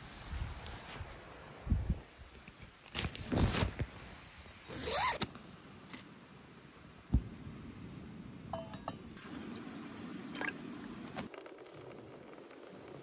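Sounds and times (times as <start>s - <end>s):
tent zipper rasp: 4.7s - 5.2s
metallic cookware clinks: 8.5s - 9.0s.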